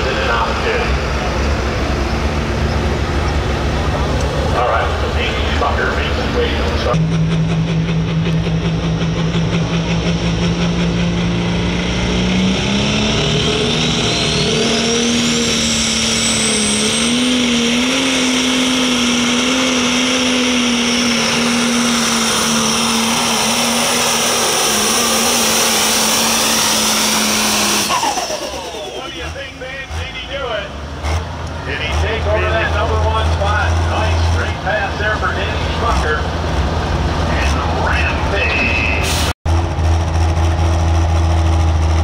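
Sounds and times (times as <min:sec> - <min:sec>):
high whine: 0:00.0 - 0:30.4
diesel engine running under load: 0:00.0 - 0:42.0.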